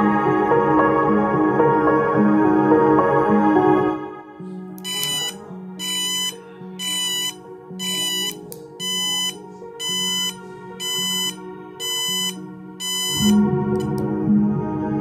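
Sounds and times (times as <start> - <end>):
background music: 0.0 - 15.0
buzzer beeping: 4.8 - 14.0.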